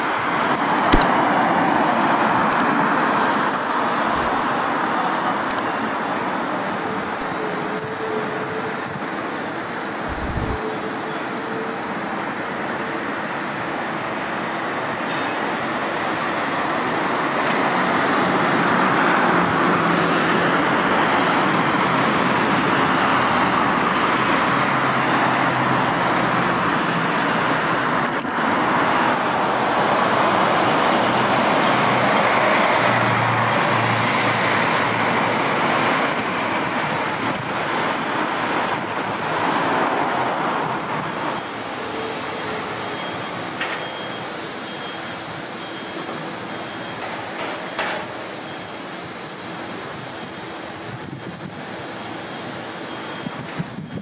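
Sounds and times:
rushing vehicle noise: 0:00.0 - 0:54.0
low engine hum: 0:10.0 - 0:11.0.

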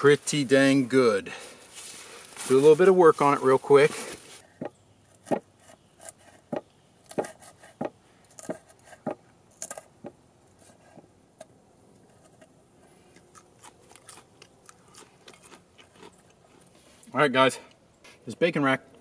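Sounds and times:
knife cutting bacon on wooden board: 0:04.6 - 0:09.9.

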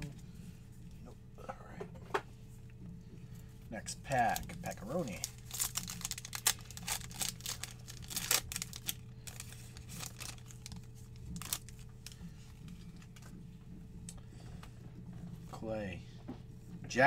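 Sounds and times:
foil wrapper tearing and crinkling: 0:04.1 - 0:12.2
cards sliding out of wrapper: 0:05.2 - 0:12.2.

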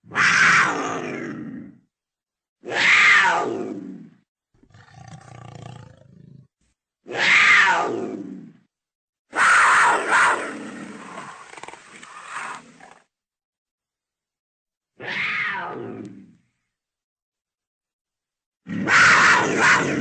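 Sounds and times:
leopard roaring: 0:02.6 - 0:06.5, 0:09.4 - 0:13.1, 0:18.7 - 0:20.0
leopard growling: 0:03.6 - 0:06.5, 0:09.4 - 0:13.1.

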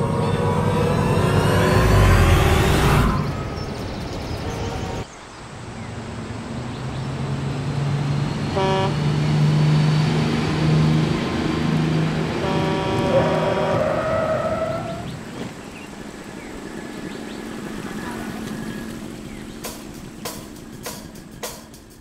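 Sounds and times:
vehicle engine droning: 0:00.0 - 0:22.0
car horn toot: 0:08.5 - 0:09.1, 0:12.2 - 0:15.0.

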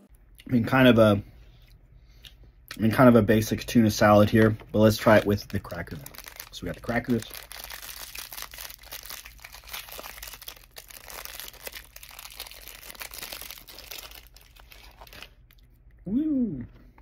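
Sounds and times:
plastic wrapper crinkling: 0:04.2 - 0:15.7.

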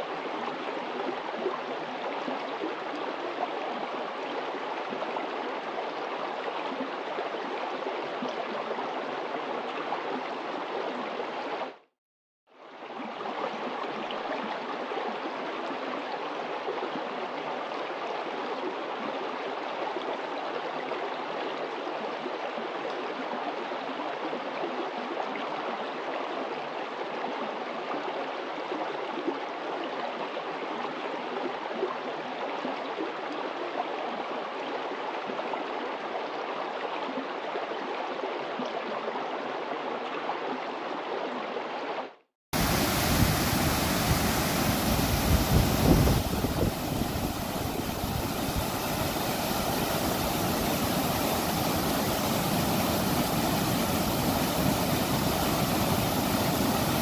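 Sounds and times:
stream running over rocks: 0:00.0 - 0:11.9, 0:12.7 - 0:57.0
white water pouring down cascade: 0:42.6 - 0:57.0.

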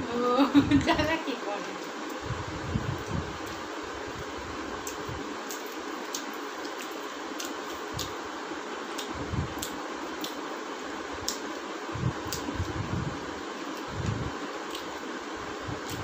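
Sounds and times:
chewing mouth clicks and smacks: 0:09.0 - 0:10.4.

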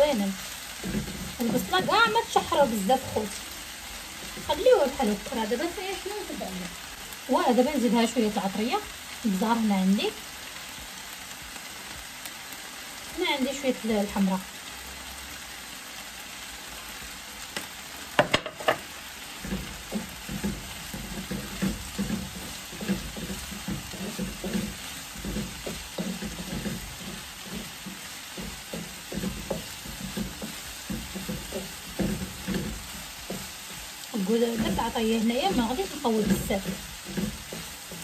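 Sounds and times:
wooden spoon scraping a pan: 0:00.0 - 0:10.7, 0:18.2 - 0:38.0
vegetables sizzling in a wok: 0:00.0 - 0:38.0.

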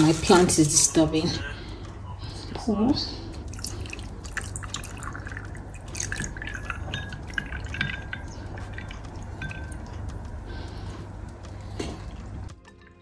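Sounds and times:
liquid pouring and dripping: 0:03.4 - 0:10.7
ice cubes clinking: 0:03.6 - 0:09.8.

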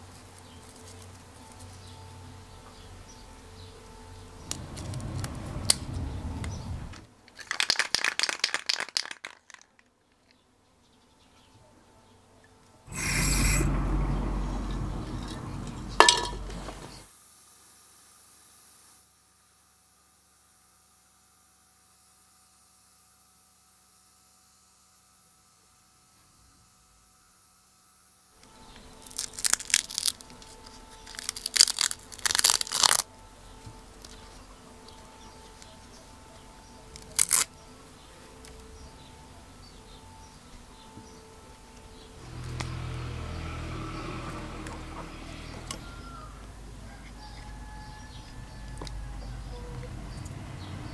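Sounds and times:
faint steady hum: 0:00.0 - 0:07.4, 0:09.7 - 0:50.9
sharp metallic clink: 0:15.0 - 0:16.6
plastic mesh peeling off tape: 0:29.0 - 0:33.1, 0:36.9 - 0:37.5.

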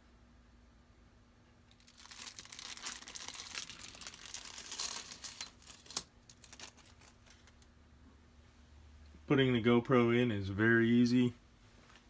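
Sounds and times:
plastic bag crinkling: 0:01.7 - 0:07.7.

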